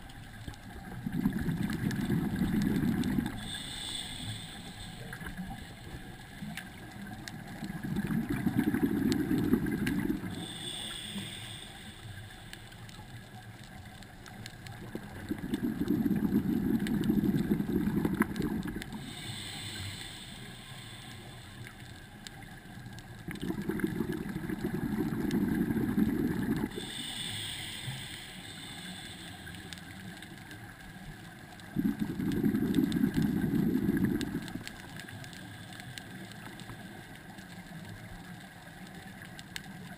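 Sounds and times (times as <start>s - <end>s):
bubbling regulator exhalation: 0.8s - 5.8s, 7.6s - 11.6s, 14.8s - 21.0s, 23.2s - 28.3s, 31.7s - 34.8s
hiss of inhalation: 2.2s - 6.5s, 8.3s - 13.0s, 15.0s - 22.0s, 25.6s - 30.3s.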